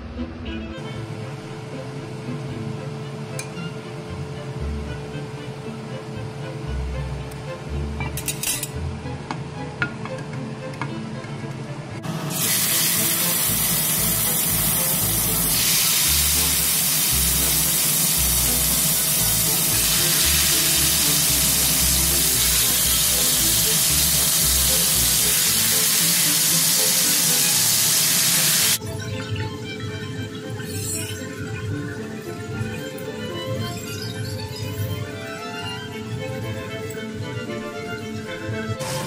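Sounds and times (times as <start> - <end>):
steaks sizzling in hot oil: 12.3 - 28.8.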